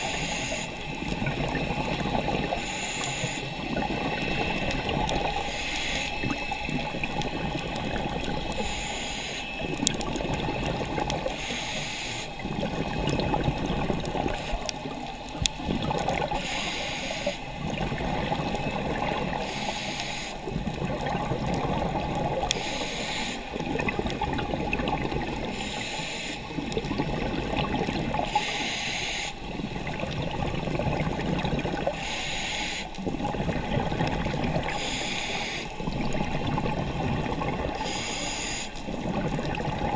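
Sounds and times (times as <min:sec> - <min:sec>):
regulator breathing hiss: 0:00.0 - 0:00.8, 0:02.5 - 0:03.6, 0:05.3 - 0:06.2, 0:08.5 - 0:09.6, 0:11.3 - 0:12.4, 0:16.3 - 0:17.6, 0:19.3 - 0:20.5, 0:22.6 - 0:23.6, 0:25.4 - 0:26.6, 0:28.3 - 0:29.5, 0:32.0 - 0:33.0, 0:34.6 - 0:35.8, 0:37.8 - 0:38.9
bubbly gurgling underwater: 0:00.0 - 0:11.4, 0:12.3 - 0:19.8, 0:20.4 - 0:28.6, 0:29.4 - 0:32.0, 0:32.9 - 0:35.1, 0:35.7 - 0:39.9.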